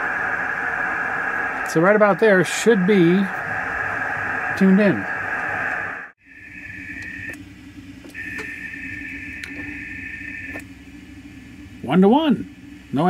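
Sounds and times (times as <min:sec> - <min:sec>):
radio static hiss: 0:00.0 - 0:07.4, 0:08.0 - 0:10.7
low hum: 0:00.0 - 0:13.0.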